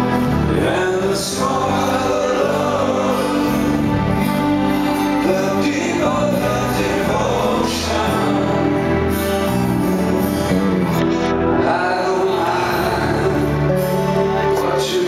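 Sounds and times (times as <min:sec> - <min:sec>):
acoustic guitar: 0:00.0 - 0:15.0
rock band playing: 0:00.0 - 0:15.0
man singing into microphone: 0:00.3 - 0:03.9, 0:05.1 - 0:09.1, 0:11.5 - 0:15.0.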